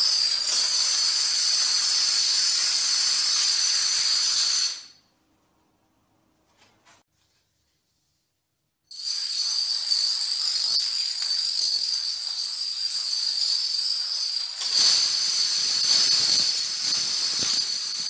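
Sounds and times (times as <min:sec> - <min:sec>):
dominoes toppling: 0:08.9 - 0:18.0.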